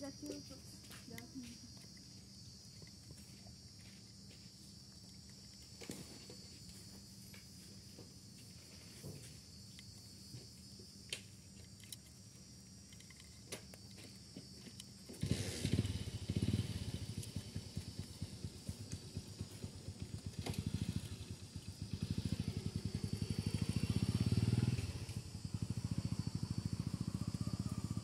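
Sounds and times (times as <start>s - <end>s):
small engine running: 10.3s - 28.0s.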